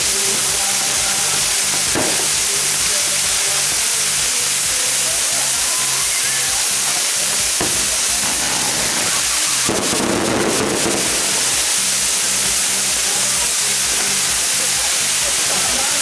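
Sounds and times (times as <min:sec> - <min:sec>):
fireworks hissing: 0:00.0 - 0:16.0.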